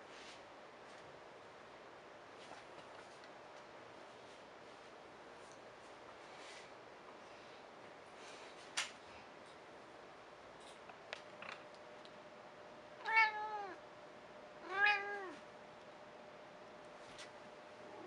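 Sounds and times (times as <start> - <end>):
cat meowing: 13.0 - 13.8, 14.6 - 15.4.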